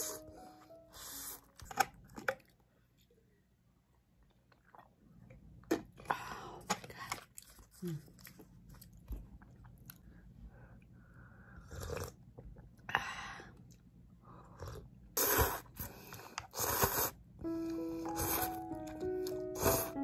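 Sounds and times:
music with held notes: 0:00.0 - 0:01.6, 0:17.4 - 0:20.0
person sipping: 0:17.9 - 0:18.6, 0:19.2 - 0:20.0.

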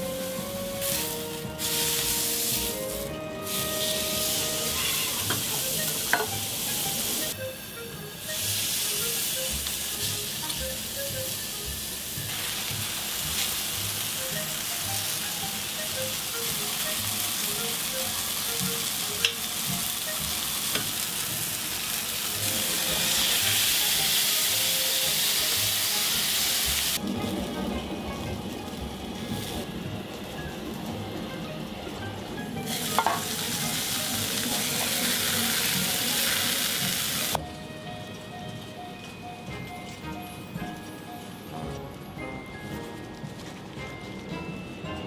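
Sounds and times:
background music: 0:00.0 - 0:45.0
patty sizzling on a griddle: 0:00.2 - 0:07.3, 0:08.2 - 0:27.0, 0:32.7 - 0:37.4.

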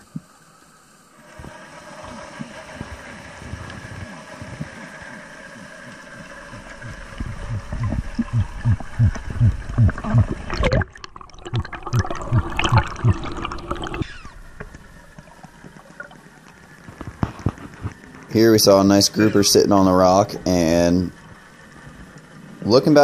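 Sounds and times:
faint steady hum: 0:00.0 - 0:23.0
water sloshing and gurgling: 0:00.0 - 0:23.0
muffled low thumps: 0:06.6 - 0:10.9.

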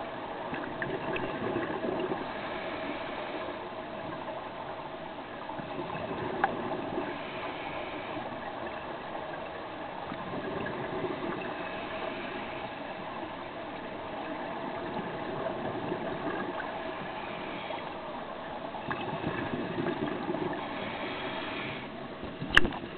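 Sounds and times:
regulator exhaust bubbles underwater: 0:00.5 - 0:02.3, 0:05.6 - 0:07.2, 0:14.8 - 0:16.8, 0:18.8 - 0:20.7
sharp click: 0:22.5 - 0:22.8.

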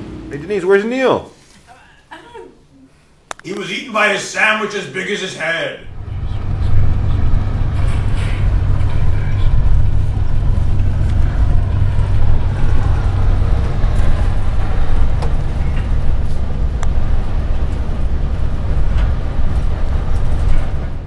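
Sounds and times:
bus engine and road rumble: 0:05.9 - 0:21.0.

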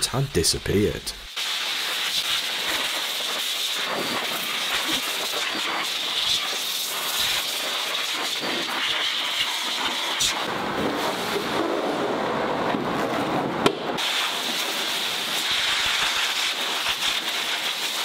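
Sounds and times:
blower hissing air: 0:00.0 - 0:12.0, 0:13.8 - 0:18.0.

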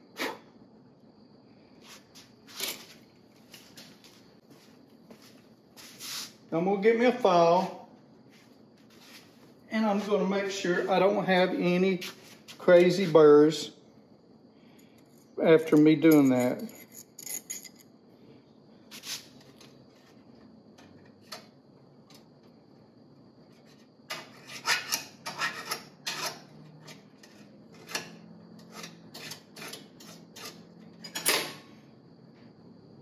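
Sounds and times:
hand file scraping metal: 0:24.1 - 0:30.7.

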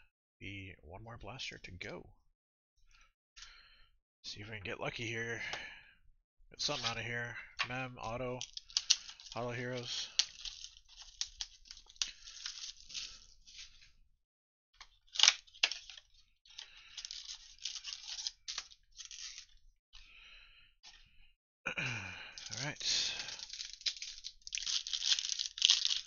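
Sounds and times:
cellophane wrap crinkling: 0:08.4 - 0:13.9, 0:14.9 - 0:19.6, 0:22.4 - 0:26.0
foil packs rustling: 0:08.4 - 0:13.9, 0:15.2 - 0:19.6, 0:22.4 - 0:26.0.

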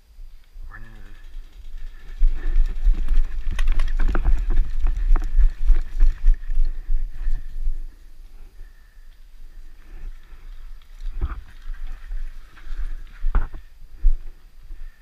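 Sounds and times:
gear clicking and rattling: 0:00.7 - 0:07.8, 0:10.0 - 0:13.6
running footfall thuds: 0:01.9 - 0:07.4.

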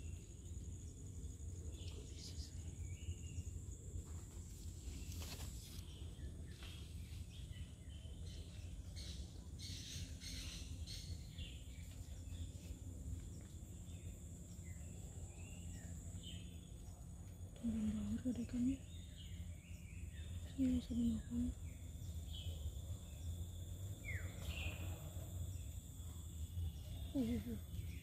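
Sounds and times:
high insect drone: 0:09.0 - 0:28.0.

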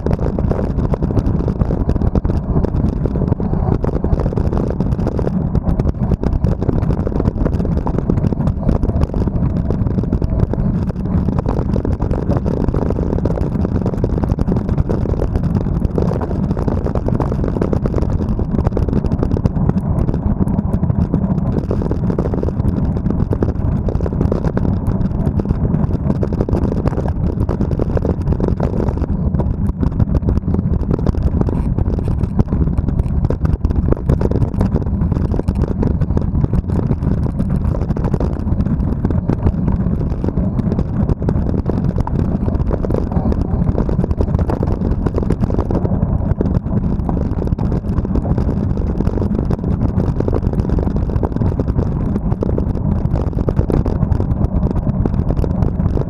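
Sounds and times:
bike rattling over bumps: 0:00.0 - 0:50.0
bike tyres rumbling over dirt: 0:00.0 - 0:56.0
wind buffeting microphone: 0:00.0 - 0:56.0.

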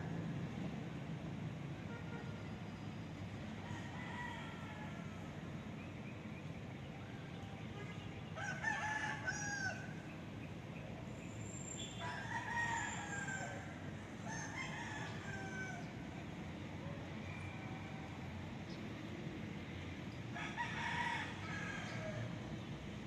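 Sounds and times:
rooster crowing: 0:03.6 - 0:05.2, 0:08.4 - 0:09.9, 0:12.0 - 0:15.9, 0:20.4 - 0:22.3.

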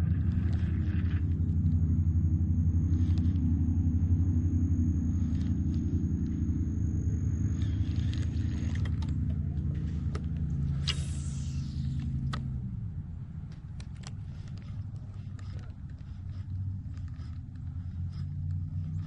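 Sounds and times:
thin high whine: 0:00.0 - 0:12.6
low motor-like rumble: 0:00.0 - 0:19.0.

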